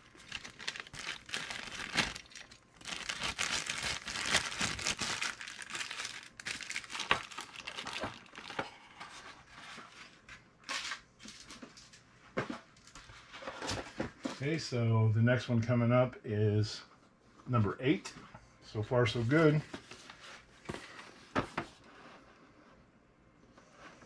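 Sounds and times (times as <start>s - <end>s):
plastic bag crinkling: 0.0s - 8.8s.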